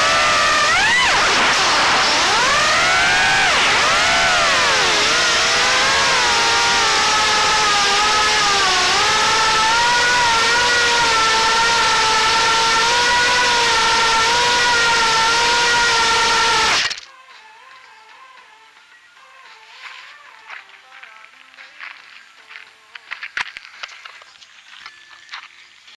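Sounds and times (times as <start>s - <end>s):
quadcopter motors whining: 0.0s - 17.1s.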